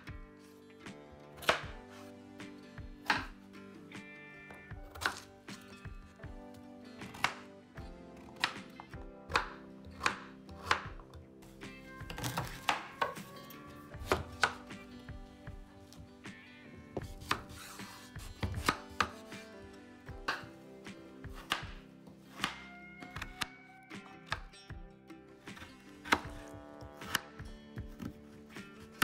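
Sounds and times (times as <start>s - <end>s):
knife chopping on wooden board: 3.0s - 3.4s, 4.8s - 5.6s, 7.0s - 7.5s, 8.2s - 11.2s, 12.0s - 13.4s, 14.0s - 14.9s, 17.0s - 19.4s, 21.3s - 23.5s, 25.6s - 29.0s.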